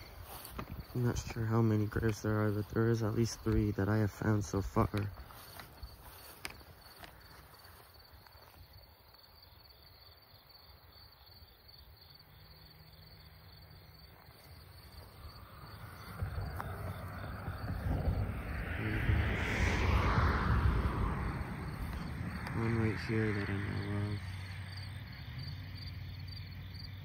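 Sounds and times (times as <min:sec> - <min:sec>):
insects chirping: 0:00.0 - 0:27.0
low outdoor hum: 0:00.0 - 0:27.0
broad rushing noise: 0:15.0 - 0:24.3.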